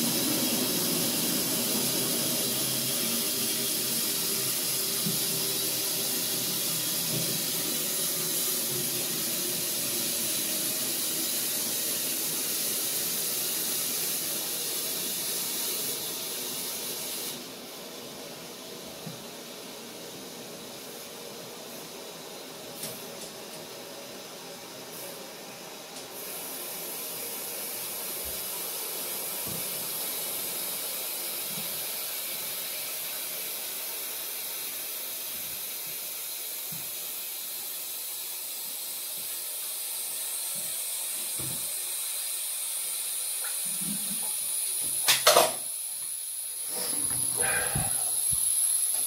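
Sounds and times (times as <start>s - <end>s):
toilet cistern filling hiss: 0.0s - 49.0s.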